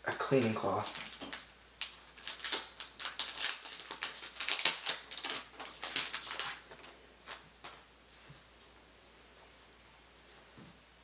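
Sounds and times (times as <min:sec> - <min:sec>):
packaging crinkling and rustling: 0:00.0 - 0:07.9.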